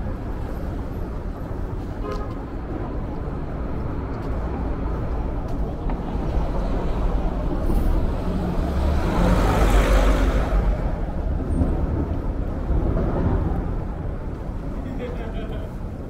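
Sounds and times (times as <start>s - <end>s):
street traffic hum: 0.0s - 16.0s
motor vehicle passing close: 7.6s - 13.6s.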